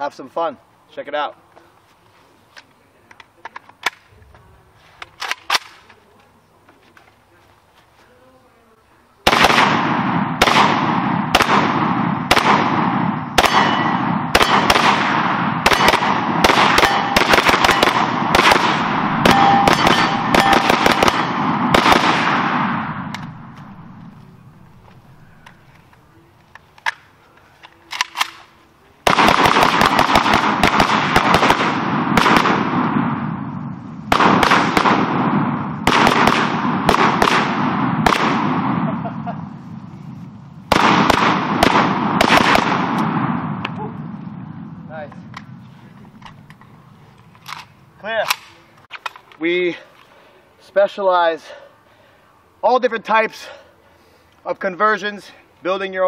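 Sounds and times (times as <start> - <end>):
rifle shots cracking: 5.1 - 5.9, 9.2 - 24.2, 27.8 - 39.1, 40.7 - 45.6.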